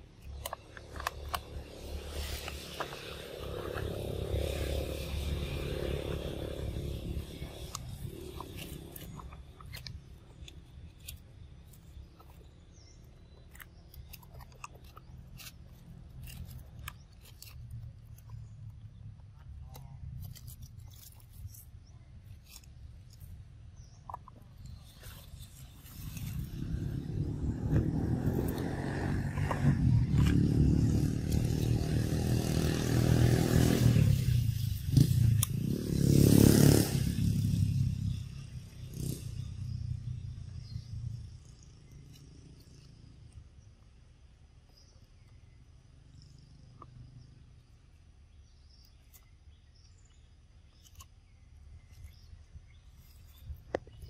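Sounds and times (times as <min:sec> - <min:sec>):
vehicle engine rumbling past: 0:00.0 - 0:10.4, 0:24.7 - 0:43.4.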